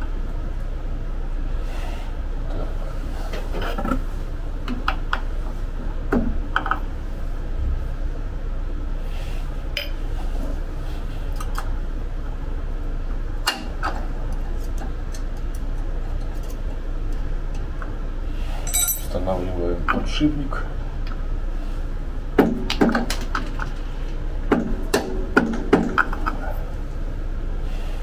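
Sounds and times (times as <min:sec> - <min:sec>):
steady low hum: 0:00.0 - 0:28.0
metallic clicks and clinks: 0:18.6 - 0:19.2.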